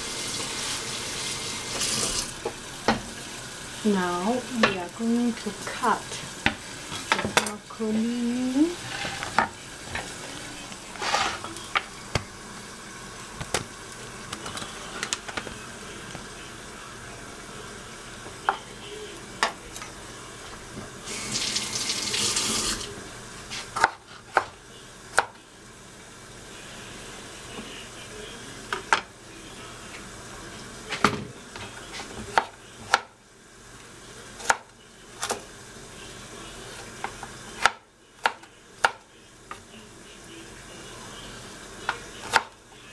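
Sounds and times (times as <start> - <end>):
kitchen tap running: 0.0 - 10.5, 20.6 - 23.0.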